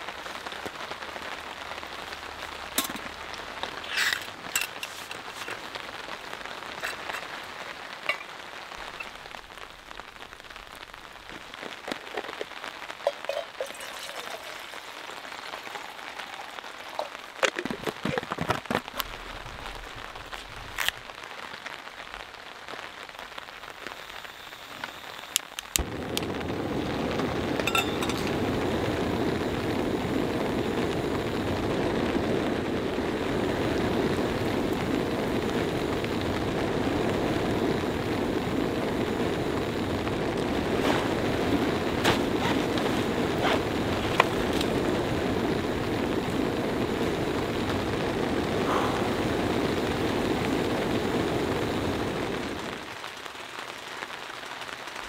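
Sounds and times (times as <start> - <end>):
light rain pattering: 0.0 - 55.0
gas stove burner hissing: 23.8 - 52.8.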